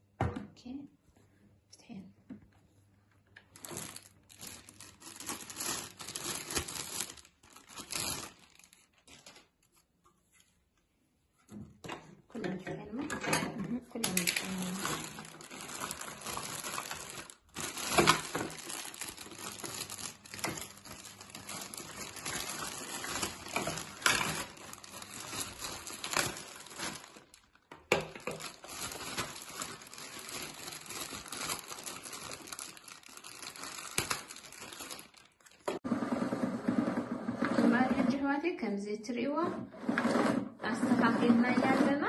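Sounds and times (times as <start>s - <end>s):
plastic bags crinkling: 3.4s - 9.9s, 13.7s - 35.8s.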